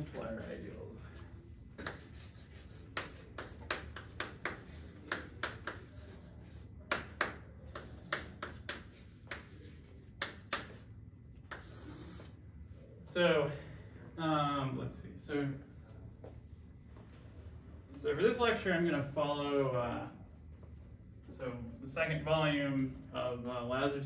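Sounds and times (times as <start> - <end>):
chalk writing on a chalkboard: 1.1 - 12.4.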